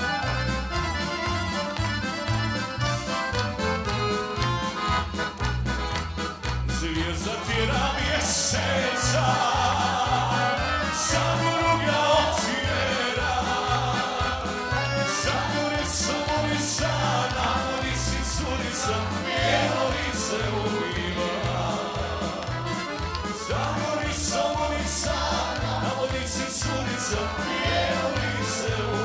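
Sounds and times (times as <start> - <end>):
accordion: 0.0 - 29.0
acoustic guitars: 0.0 - 29.0
keyboard: 0.0 - 29.0
pulsing bass line: 0.0 - 29.0
man singing into microphone: 6.8 - 14.3, 15.1 - 19.4.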